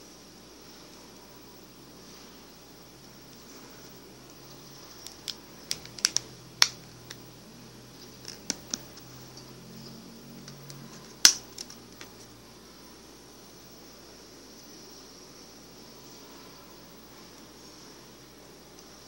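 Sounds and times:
steady hiss: 0.0 - 19.0
sharp clicks and taps: 5.0 - 7.2, 8.1 - 9.1.

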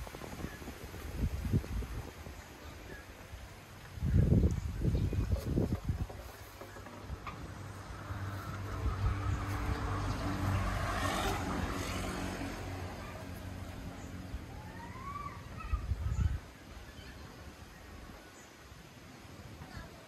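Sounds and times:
vehicle engine passing: 6.7 - 14.9.

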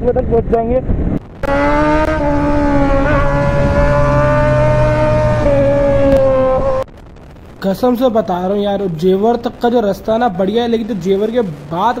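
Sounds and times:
motorcycle engine cruising: 1.2 - 6.9.

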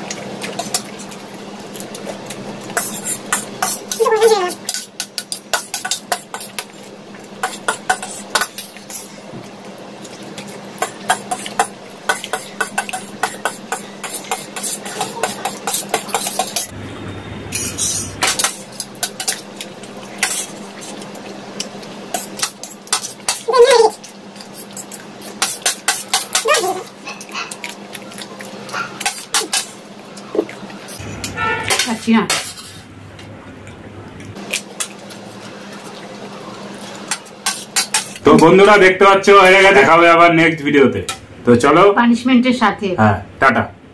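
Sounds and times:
slurping and chewing: 17.6 - 31.4.

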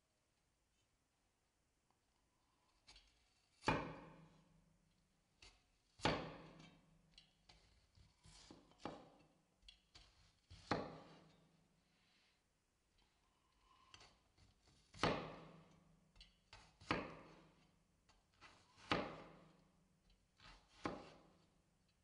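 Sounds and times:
knife chopping on wooden board: 2.8 - 4.4, 5.4 - 11.4, 13.6 - 19.6, 20.4 - 21.5.

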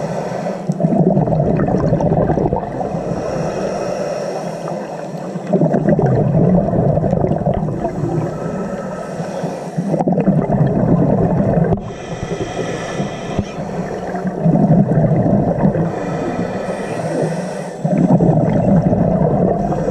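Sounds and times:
underwater bubbling and gurgling: 0.0 - 19.9
quiet hissing: 2.8 - 5.5, 11.6 - 14.5, 15.6 - 18.0.

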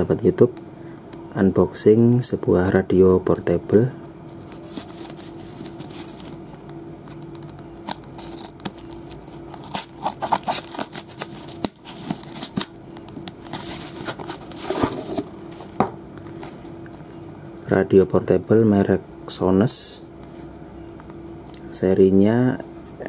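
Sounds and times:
cardboard scraping: 4.6 - 6.4, 7.8 - 12.7, 13.5 - 15.7
scissors cutting cardboard: 7.8 - 12.7.

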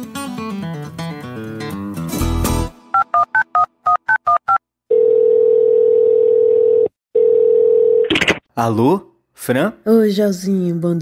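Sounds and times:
telephone ringing tone: 3.0 - 8.0.

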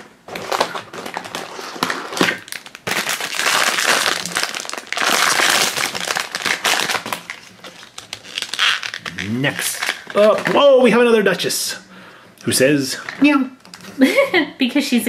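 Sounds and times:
foil bag crinkling: 0.3 - 11.2.

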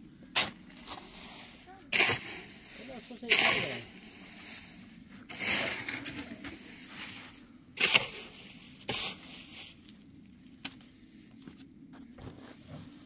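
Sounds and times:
footsteps crunching on stony ground: 10.8 - 13.0.

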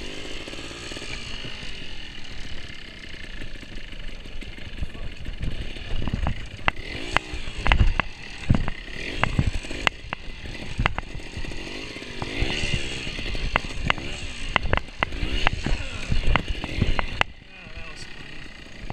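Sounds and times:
motorcycle engine revving: 0.0 - 18.9
bike clattering over logs: 3.4 - 11.6.

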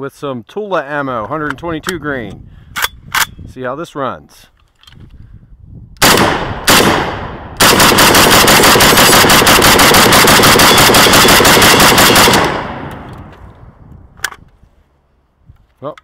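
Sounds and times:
rapid automatic gunfire: 6.0 - 12.9
rifle shots: 6.0 - 13.3.

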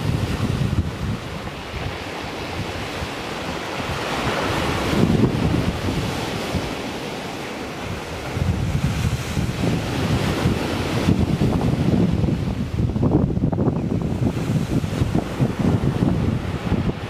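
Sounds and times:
waves breaking on shingle beach: 0.0 - 17.0
wind buffeting microphone: 0.0 - 17.0.

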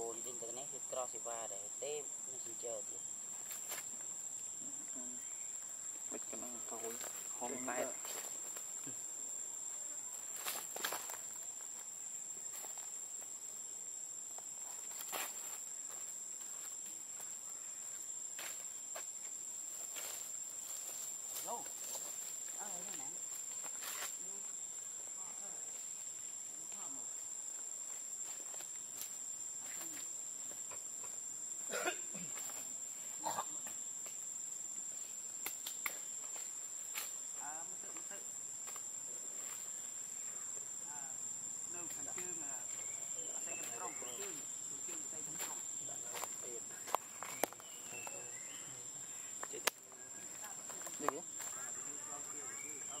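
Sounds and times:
high-pitched insect drone: 0.0 - 53.0
rustles and crackles: 18.6 - 24.5.

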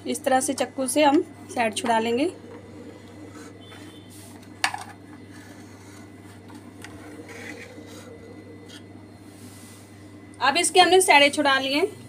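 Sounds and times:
low hum: 1.3 - 10.4.

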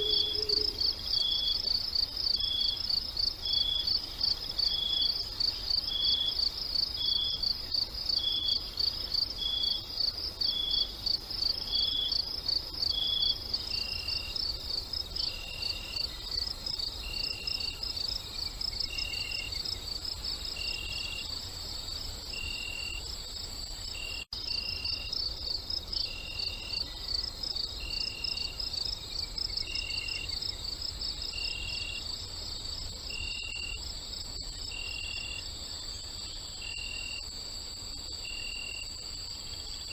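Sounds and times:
lower repeating chirp: 0.0 - 0.8
crickets chirping: 0.0 - 39.9.

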